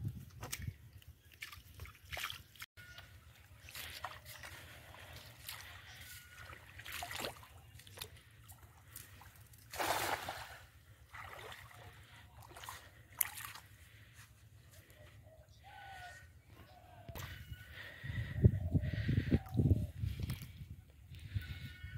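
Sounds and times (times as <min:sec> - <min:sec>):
water sloshing: 0:00.4 - 0:14.0
net splashing onto water: 0:06.4 - 0:08.0, 0:09.2 - 0:13.6.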